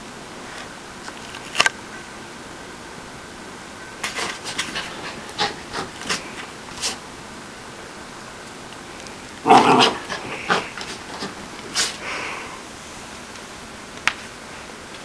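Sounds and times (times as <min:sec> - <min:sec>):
small dog snorting: 0:04.0 - 0:07.0, 0:09.5 - 0:12.1.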